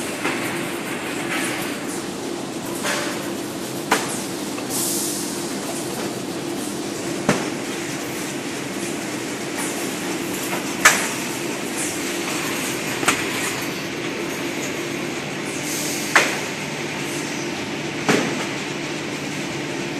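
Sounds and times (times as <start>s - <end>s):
machine mechanical hum: 0.0s - 19.9s.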